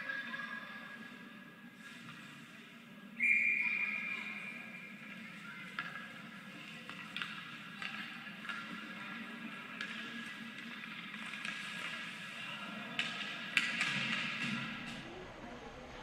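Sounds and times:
low hum of rink: 0:00.0 - 0:16.0
referee's whistle: 0:03.2 - 0:04.2.

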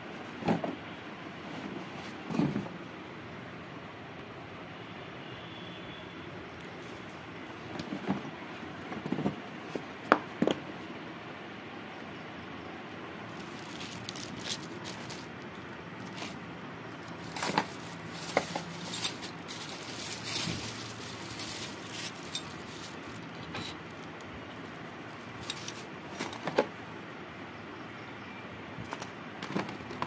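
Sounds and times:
small parts clicking and knocking: 0:13.3 - 0:24.3, 0:25.4 - 0:26.7
plastic packaging crinkling: 0:13.3 - 0:26.2.

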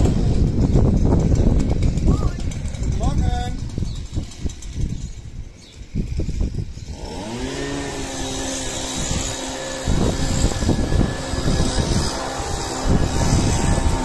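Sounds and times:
leaf blower spinning: 0:00.0 - 0:14.0
rush of air: 0:07.8 - 0:14.0.

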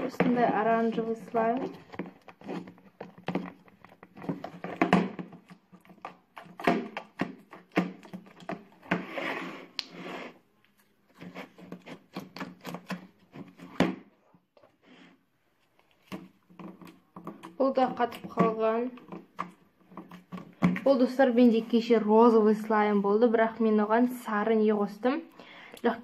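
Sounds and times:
plastic box clicks and knocks: 0:01.8 - 0:09.0, 0:16.0 - 0:20.9
short rustling scrape: 0:08.9 - 0:10.5.

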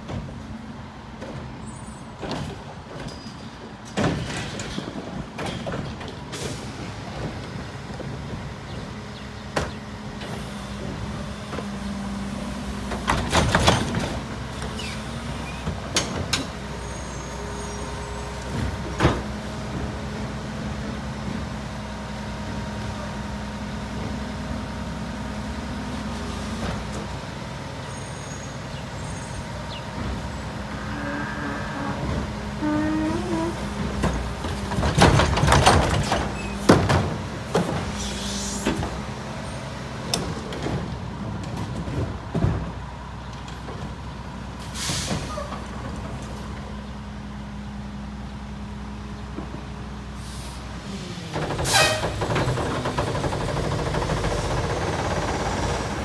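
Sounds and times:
garbage truck engine whine: 0:06.4 - 0:56.0
short air hisses: 0:50.2 - 0:50.7.

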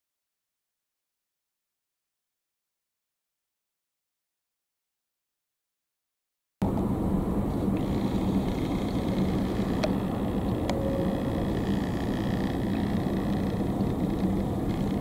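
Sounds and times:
constant low hum: 0:06.6 - 0:15.0
low outdoor rumble: 0:06.6 - 0:15.0
faint clicks: 0:07.7 - 0:15.0.

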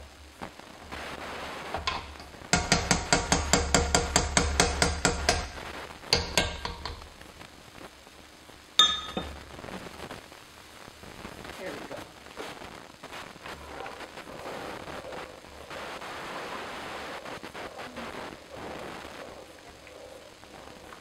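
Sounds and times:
metal masher knocking on iron pot: 0:01.8 - 0:07.2, 0:08.8 - 0:09.4
sharp ringing clink: 0:08.8 - 0:09.3.

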